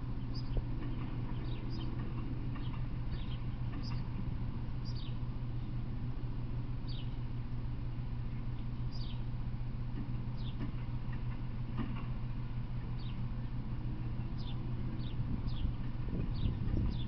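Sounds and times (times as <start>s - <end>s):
steady low hum: 0.0s - 17.0s
bird chirping: 0.1s - 4.2s, 4.8s - 5.9s, 6.8s - 7.3s, 8.3s - 9.3s, 10.4s - 10.7s, 12.9s - 13.5s, 14.2s - 17.0s.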